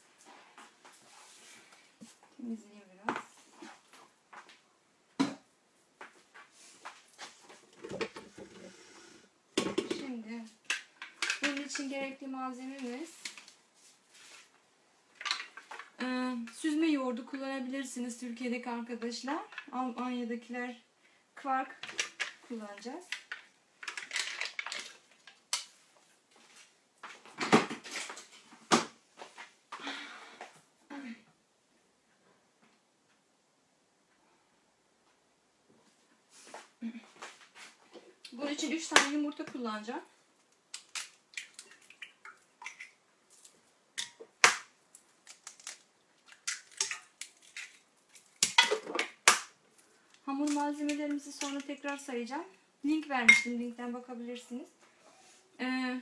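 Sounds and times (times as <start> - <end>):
eggs cracking on metal bowl: 44.0 - 49.6.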